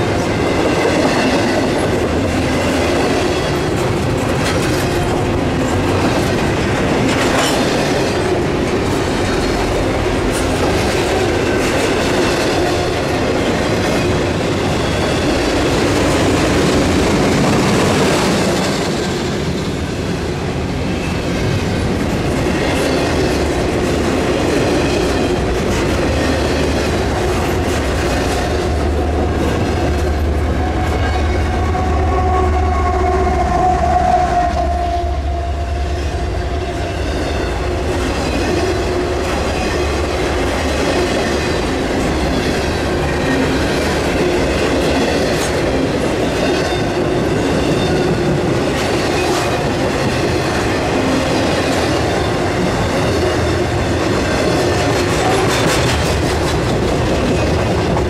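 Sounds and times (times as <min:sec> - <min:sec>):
train cars clickety-clack: 0:00.0 - 0:58.0
train wheel squeal: 0:11.4 - 0:16.8, 0:24.7 - 0:56.4.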